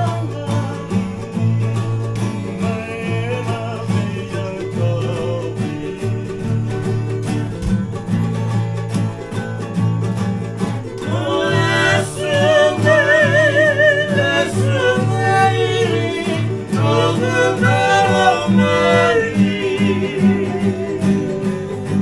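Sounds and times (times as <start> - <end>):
acoustic guitars strumming: 0.0 - 22.0
men singing together: 2.2 - 6.8, 11.0 - 22.0.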